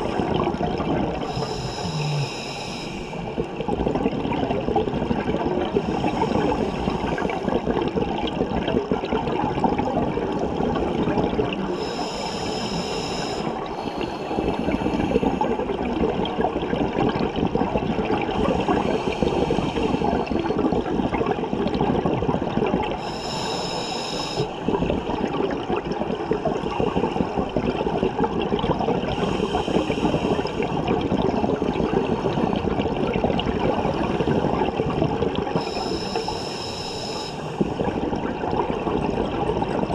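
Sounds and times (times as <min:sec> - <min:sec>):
exhaled air bubbles rushing: 0:00.0 - 0:23.4, 0:24.2 - 0:39.9
regulator hissing inhalation: 0:01.2 - 0:03.3, 0:11.7 - 0:15.4, 0:23.0 - 0:24.6, 0:35.6 - 0:37.6.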